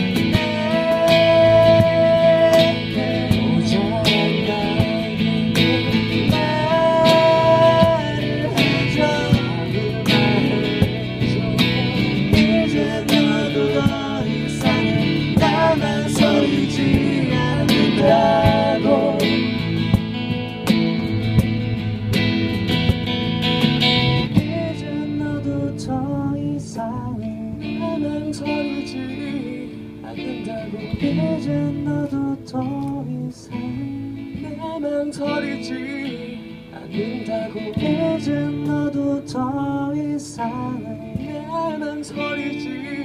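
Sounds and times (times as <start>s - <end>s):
man singing: 0.0s - 20.0s, 24.3s - 43.0s
cajon beating: 0.0s - 25.3s
acoustic guitar strumming: 0.0s - 43.0s.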